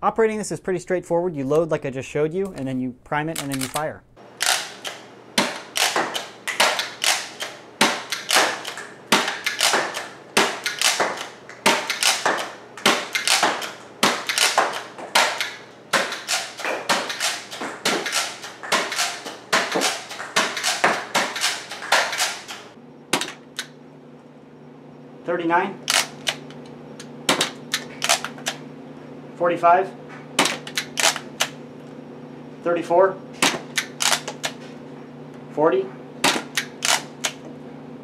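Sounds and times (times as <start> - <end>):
toy blaster clacks and snaps: 5.6 - 23.7, 25.9 - 26.5, 27.3 - 28.6, 30.4 - 31.5, 33.4 - 34.6, 36.3 - 37.4.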